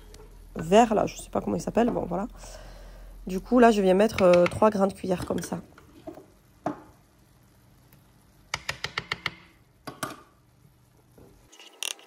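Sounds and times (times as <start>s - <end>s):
metal spoon tapping frying pan: 4.1s - 5.5s, 8.5s - 10.2s.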